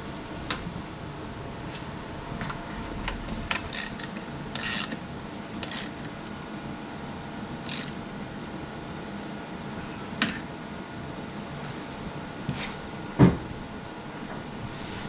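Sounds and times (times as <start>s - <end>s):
ratcheting clicks: 7.7s - 8.0s.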